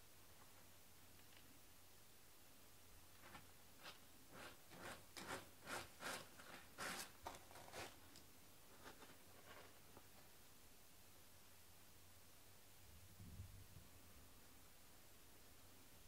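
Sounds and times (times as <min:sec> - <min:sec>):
cat digging in litter: 0:03.2 - 0:10.2.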